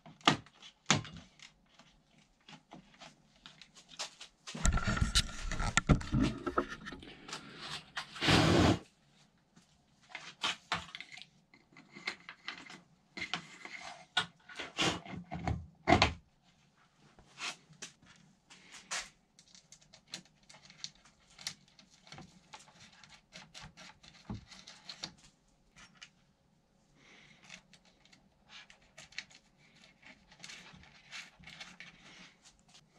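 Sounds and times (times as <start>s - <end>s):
loud scrape: 7.5s - 8.9s.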